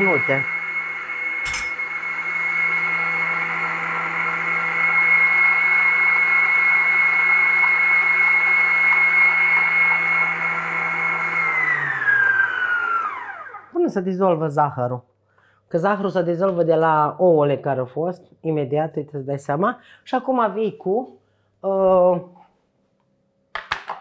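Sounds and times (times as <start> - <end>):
stand mixer motor whining: 0.0 - 13.8.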